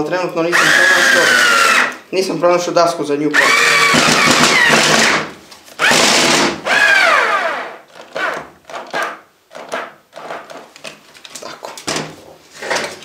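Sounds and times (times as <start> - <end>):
cordless drill driving screw into wood: 0.6 - 2.0, 3.4 - 10.3.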